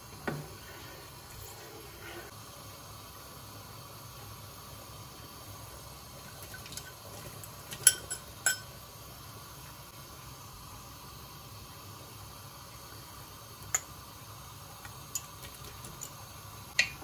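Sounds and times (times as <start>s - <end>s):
soup simmering hiss: 0.0s - 17.0s
spoon clinking on bowl: 7.7s - 8.7s.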